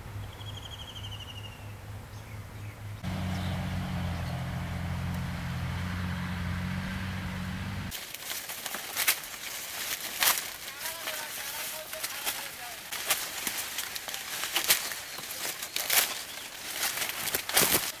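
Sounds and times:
low hum: 1.6s - 7.9s
dry maize leaves rustling: 7.8s - 18.0s
stalk snapping: 7.9s - 18.0s.

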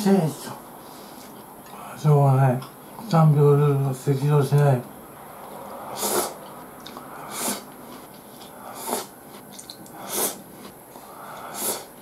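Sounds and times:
small clicks of eating: 9.4s - 10.0s
man breathing heavily through nose: 11.0s - 12.0s.

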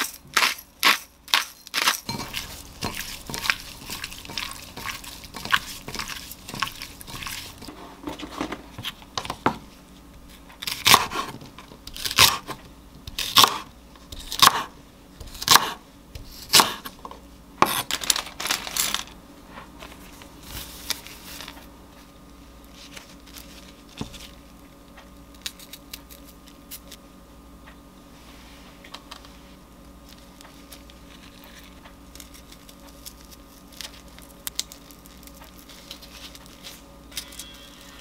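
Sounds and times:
knife chopping on wooden board: 1.8s - 7.8s, 10.7s - 11.4s, 12.0s - 16.9s.

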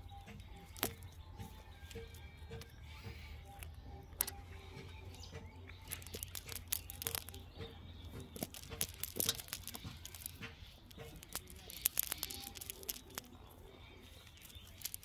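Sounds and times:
fishing net rustling and crackling: 5.8s - 7.5s, 8.2s - 13.4s.

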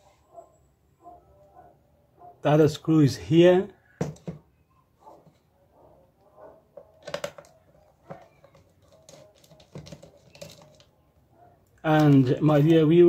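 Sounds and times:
plastic casing scraping: 6.7s - 10.9s
plastic casing clicks: 6.8s - 10.9s.

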